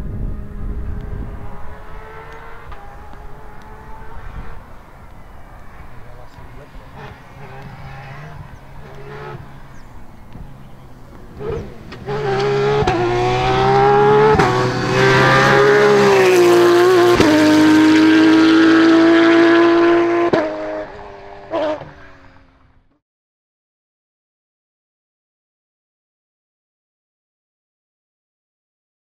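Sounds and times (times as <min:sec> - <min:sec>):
rally car engine passing: 0:00.0 - 0:22.9
engine gear changes: 0:00.8 - 0:19.6.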